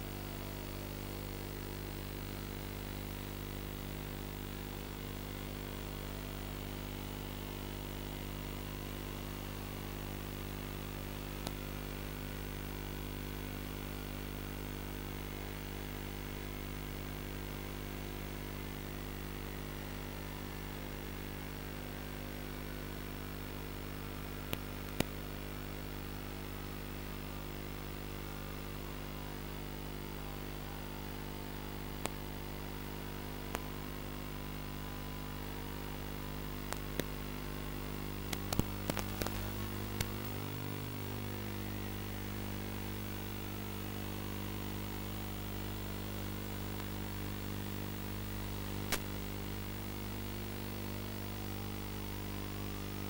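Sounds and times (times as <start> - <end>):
sharp static clicks: 0.0 - 17.3, 18.3 - 26.0, 32.0 - 34.8, 35.8 - 53.0
electrical hum and buzz: 0.0 - 53.0
static hiss: 36.6 - 53.0.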